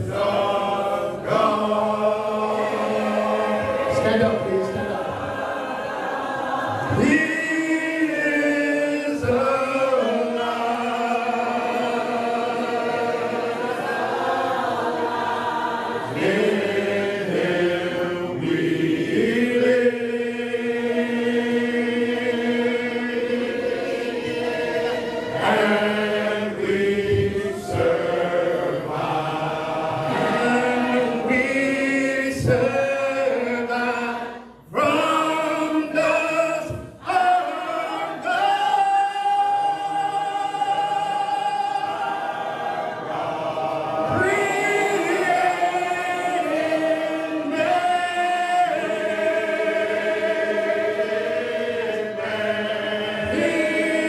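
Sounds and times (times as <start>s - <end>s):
congregation singing a hymn: 0.0s - 54.0s
man singing through a microphone: 6.9s - 12.2s, 30.5s - 41.8s.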